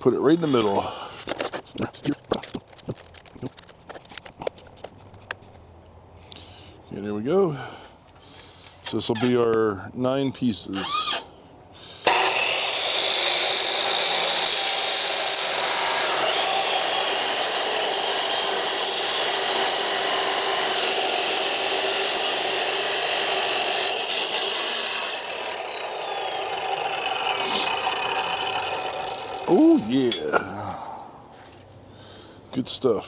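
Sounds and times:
saw grinding through steel: 0.3s - 0.9s, 12.0s - 30.5s
cut-off saw whining: 12.0s - 30.5s.

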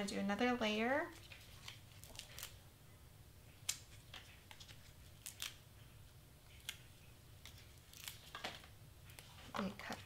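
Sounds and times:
tape clicks and snips: 3.6s - 5.6s.

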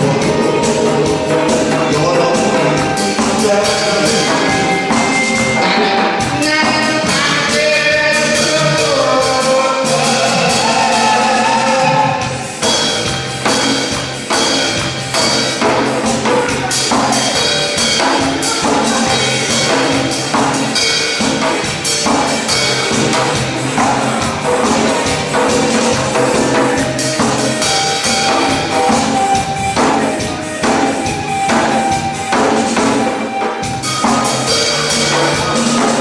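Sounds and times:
man singing into a microphone: 0.0s - 12.4s
hourglass drum beating: 0.0s - 36.0s.

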